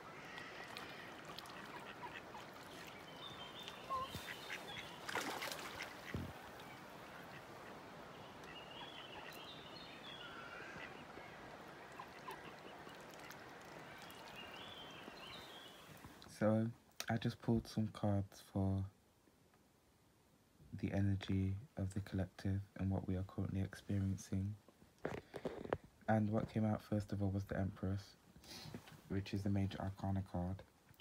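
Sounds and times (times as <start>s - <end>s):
ducks calling: 0.0s - 16.1s
shallow stream wash: 0.0s - 16.2s.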